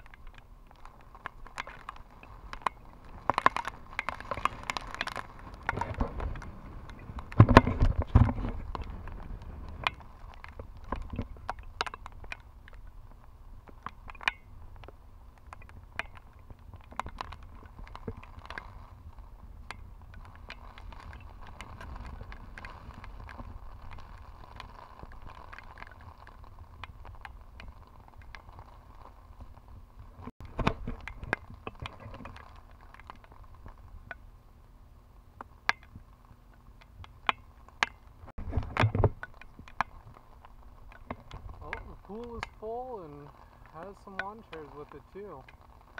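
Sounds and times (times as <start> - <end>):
raindrops ticking on camera: 0.0 - 45.9
wind buffeting microphone: 2.1 - 32.4.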